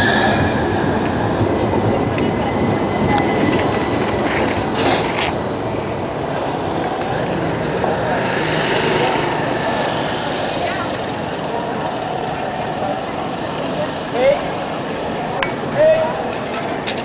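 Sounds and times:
wind rush: 0.0s - 12.1s
tram whine: 0.0s - 17.0s
bicycle rolling noise: 1.4s - 15.4s.

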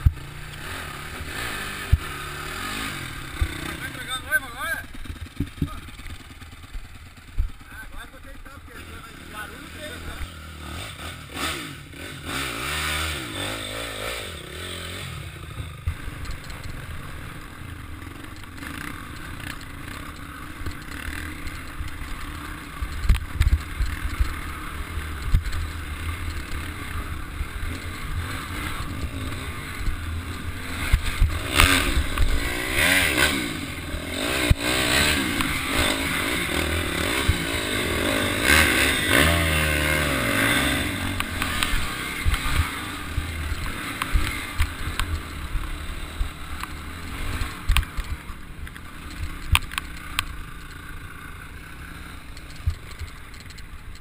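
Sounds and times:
dirt bike engine revving: 0.0s - 54.0s
bike clattering over bumps: 2.8s - 7.6s.

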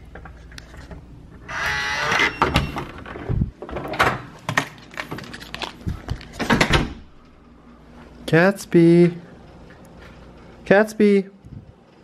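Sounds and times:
door opening: 1.4s - 5.3s, 6.2s - 7.3s.

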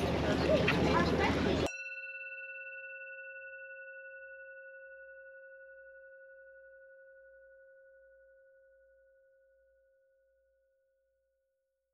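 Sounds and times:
bell-like chime note: 1.6s - 9.9s.

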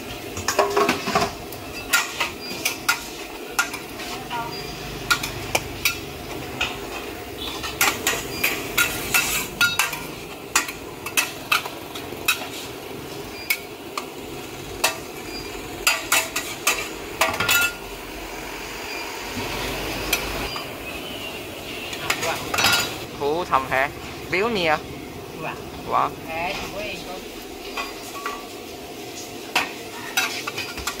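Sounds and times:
metal spatula clanking against wok: 6.6s - 12.5s.

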